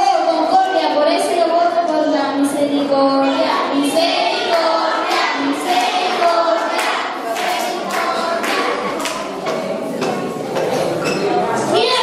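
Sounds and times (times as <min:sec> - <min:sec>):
children singing together: 0:00.0 - 0:11.0
clapping: 0:04.5 - 0:09.6.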